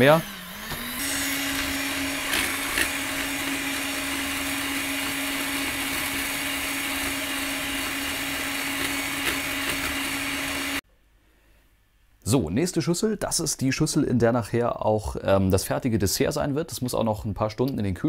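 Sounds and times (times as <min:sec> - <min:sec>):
electric hand mixer humming: 0:00.0 - 0:10.8.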